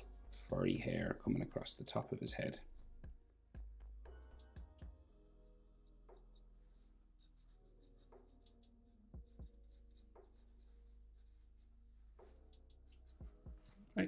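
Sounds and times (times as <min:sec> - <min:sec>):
marker scratching on paper: 0:00.0 - 0:00.9, 0:05.5 - 0:13.9.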